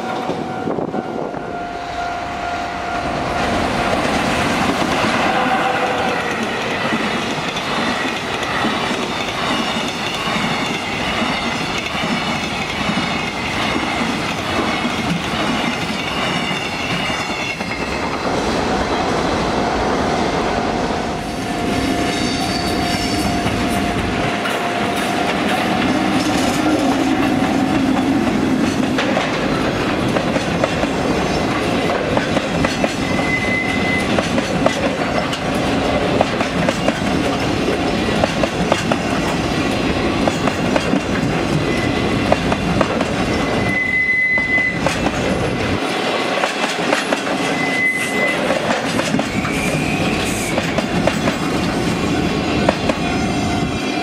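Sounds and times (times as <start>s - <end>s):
train wheels clacking over joints: 6.0s - 18.2s, 24.3s - 43.8s, 44.4s - 53.2s
high wheel squeals: 21.3s - 24.0s, 33.0s - 34.2s, 41.6s - 42.2s, 43.3s - 45.0s, 47.4s - 48.5s, 49.2s - 50.8s.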